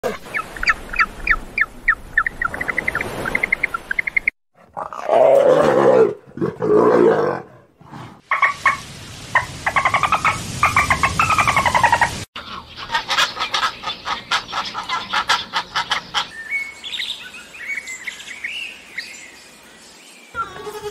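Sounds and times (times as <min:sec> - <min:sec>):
high chirping calls: 0:00.2 - 0:04.3
leopard growling roars: 0:04.6 - 0:08.2.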